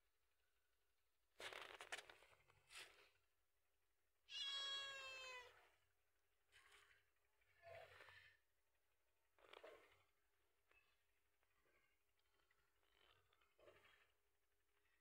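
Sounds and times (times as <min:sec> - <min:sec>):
cat meowing: 0:04.3 - 0:05.6.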